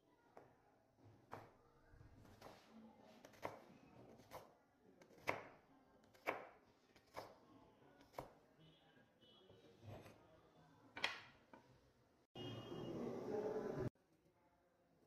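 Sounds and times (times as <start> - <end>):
knife slicing onion: 2.2 - 7.4.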